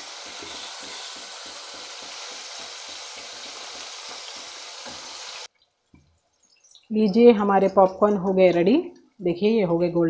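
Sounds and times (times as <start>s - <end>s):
oil sizzling while deep-frying: 0.0s - 6.9s.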